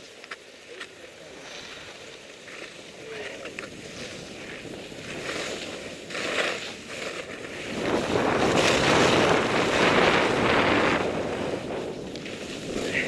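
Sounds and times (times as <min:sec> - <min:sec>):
skis scraping over snow: 0:00.0 - 0:13.0
wind on microphone: 0:03.3 - 0:13.0.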